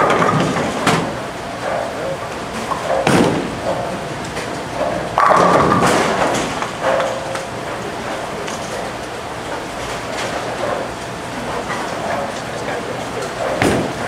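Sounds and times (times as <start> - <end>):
bowling pins crashing: 0.0 - 1.2, 2.6 - 7.2, 13.4 - 14.0
bowling ball rolling: 0.0 - 8.7.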